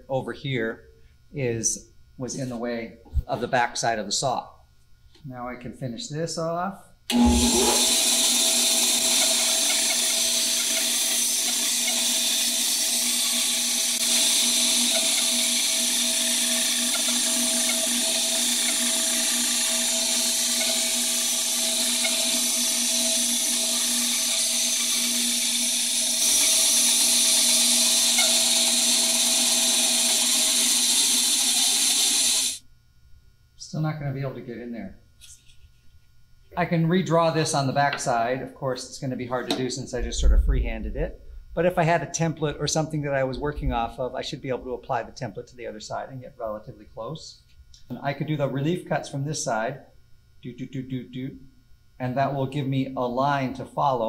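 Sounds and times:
band saw cutting wood: 7.1s - 32.6s.

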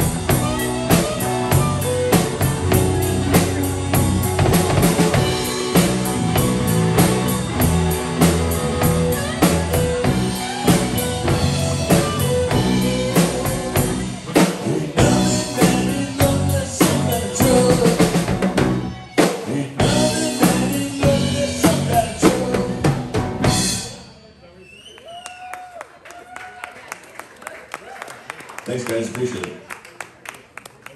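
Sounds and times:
drum kit steady beat: 0.0s - 24.0s
live rock band playing: 0.0s - 24.3s.

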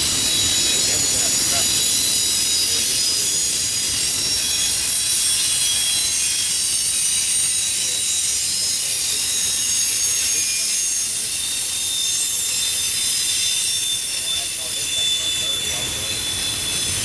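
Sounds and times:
train wheels rumbling on rail: 0.0s - 6.8s, 12.2s - 17.0s
wheels squealing: 0.0s - 17.0s.

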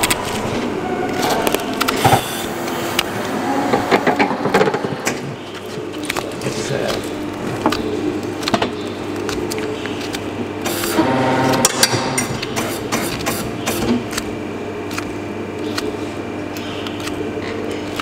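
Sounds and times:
droning tone: 0.0s - 12.6s
mechanical hum: 0.0s - 18.0s.

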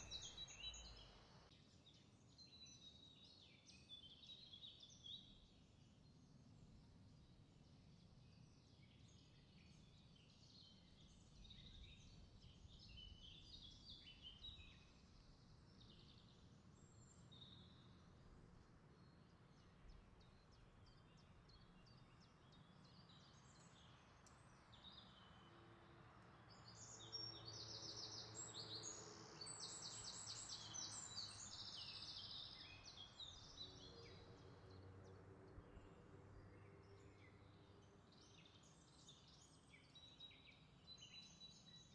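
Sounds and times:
birds chirping: 0.0s - 1.2s.

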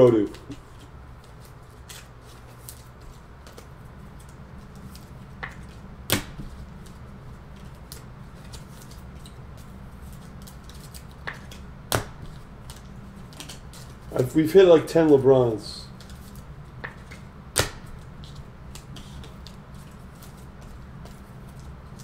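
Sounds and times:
low steady hum: 0.0s - 22.0s
cards clicking and tapping: 7.6s - 14.3s, 16.0s - 21.7s.

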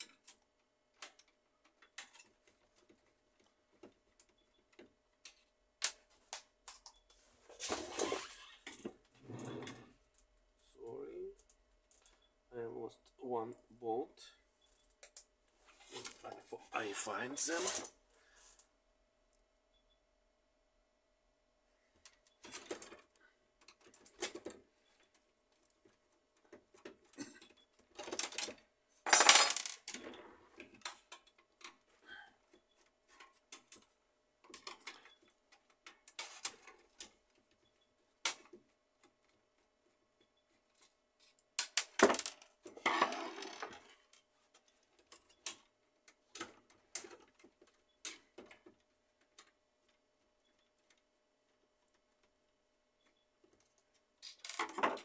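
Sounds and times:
small metal parts clinking: 27.5s - 30.0s
metal parts clattering: 28.0s - 30.0s.

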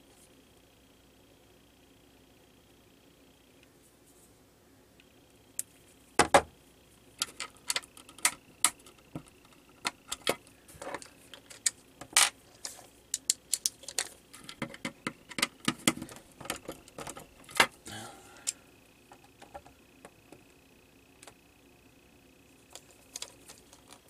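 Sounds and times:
plastic clicks taps and clatter: 7.2s - 17.7s.

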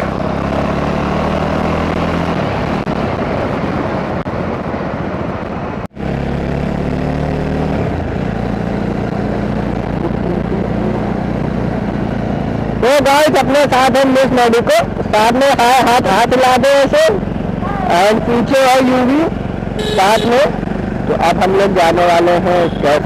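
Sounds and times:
wind rushing over microphone: 0.0s - 19.6s
motorcycle engine running: 5.9s - 23.0s.

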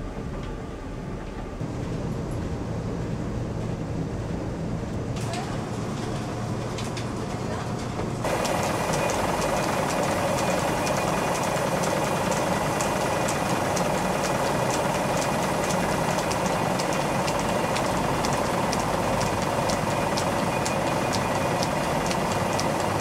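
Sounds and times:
mill machinery running: 5.1s - 23.0s.

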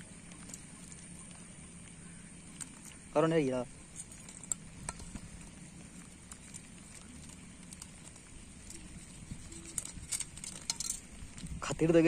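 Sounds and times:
outdoor background: 0.0s - 12.0s.

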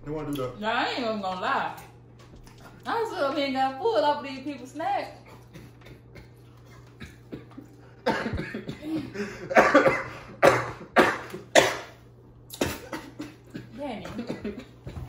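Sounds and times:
man coughing hard: 5.3s - 12.0s, 12.6s - 15.0s.

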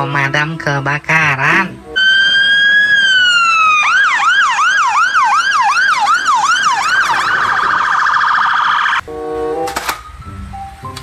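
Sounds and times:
fire engine siren: 2.0s - 9.0s.

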